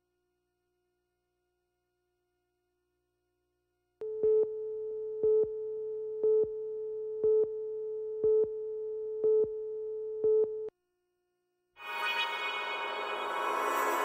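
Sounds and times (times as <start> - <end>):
steady reference tone: 11.8 - 14.0.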